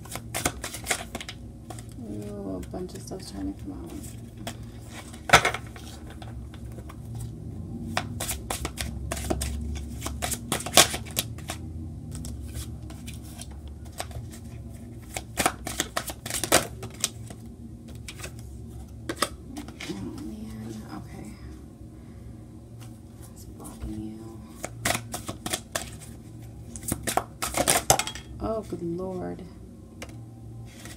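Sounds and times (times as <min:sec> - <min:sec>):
cards being shuffled: 0:00.0 - 0:02.2, 0:03.5 - 0:07.3, 0:07.9 - 0:20.3, 0:24.5 - 0:28.0, 0:30.7 - 0:30.9
low steady hum: 0:00.0 - 0:30.9.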